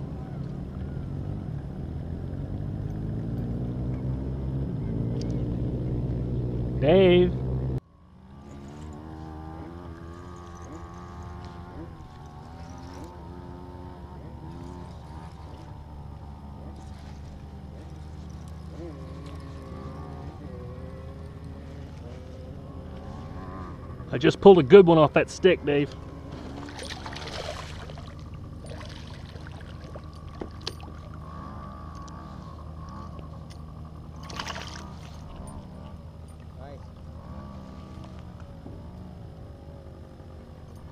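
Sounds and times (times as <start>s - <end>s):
boat motor humming: 0.0s - 40.9s
water lapping against kayak: 10.0s - 13.2s, 16.6s - 19.6s, 26.3s - 31.3s, 34.1s - 37.1s.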